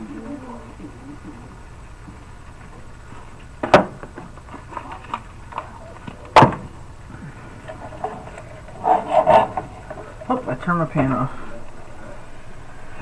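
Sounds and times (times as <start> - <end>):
spatula scraping a pan: 8.0 - 9.9.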